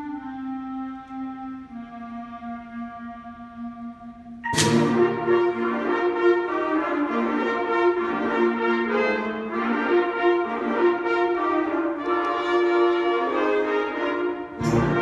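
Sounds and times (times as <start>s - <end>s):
concert band playing: 4.4s - 6.8s.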